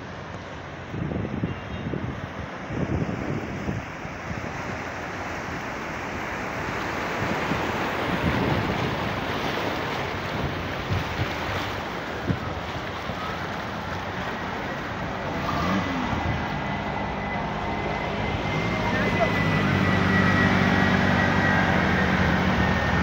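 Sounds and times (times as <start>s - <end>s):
floodwater rushing and splashing: 0.0s - 23.0s
low engine hum: 0.0s - 23.0s
wind noise on microphone: 0.8s - 5.1s, 7.1s - 17.3s.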